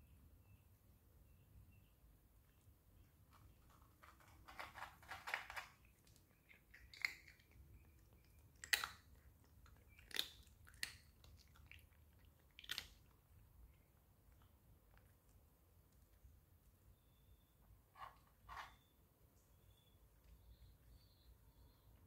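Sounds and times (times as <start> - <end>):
cat chewing crunchy food: 3.7 - 15.4.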